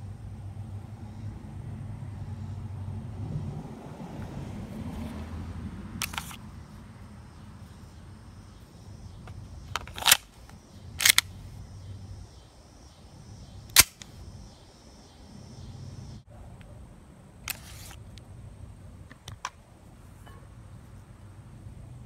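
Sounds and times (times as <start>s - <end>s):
airsoft pistol clicks: 9.2s - 10.4s, 11.0s - 11.3s, 13.7s - 14.1s.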